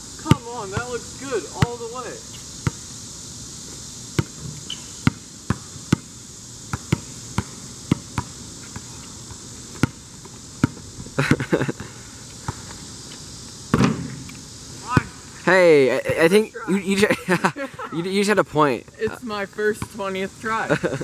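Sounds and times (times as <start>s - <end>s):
basketball bouncing on asphalt: 0.2s - 0.9s, 1.6s - 1.8s, 2.6s - 2.9s, 4.2s - 10.9s, 13.7s - 14.3s.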